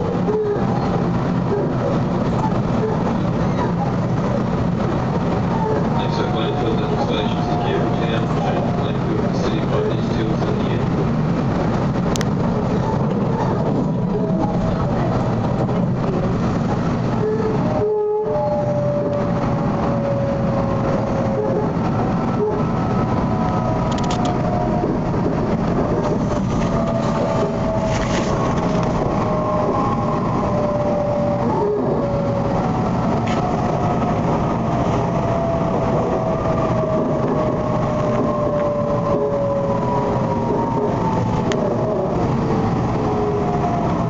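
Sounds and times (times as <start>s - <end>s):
train running rumble: 0.0s - 44.0s
faint track clicks: 12.1s - 12.3s, 23.5s - 24.4s.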